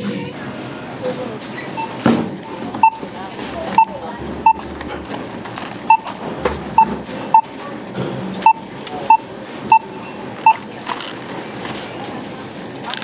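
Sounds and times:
barcode scanner beeps: 0:01.8 - 0:03.1, 0:03.7 - 0:04.7, 0:05.9 - 0:06.2, 0:06.8 - 0:07.6, 0:08.4 - 0:10.7.

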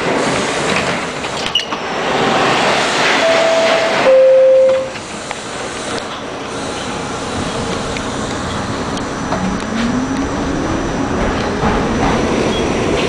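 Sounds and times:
subway train rumbling past: 0:00.0 - 0:13.0
brief steady tones: 0:03.2 - 0:05.0.

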